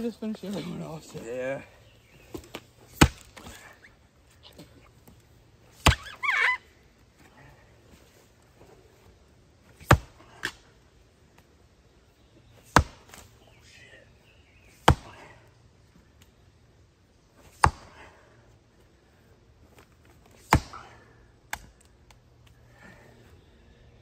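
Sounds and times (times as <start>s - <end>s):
splitting tool chopping wood: 2.3s - 3.7s, 5.8s - 6.1s, 9.8s - 10.6s, 12.7s - 13.2s, 14.8s - 15.2s, 17.5s - 18.0s, 20.4s - 21.7s.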